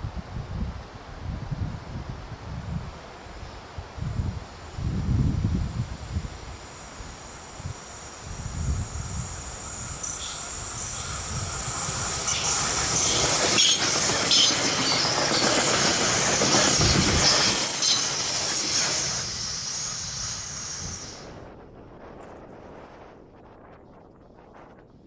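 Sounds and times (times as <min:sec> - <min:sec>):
train passing at speed: 0:02.9 - 0:24.8
sharp clicks from train wheels: 0:08.7 - 0:21.4.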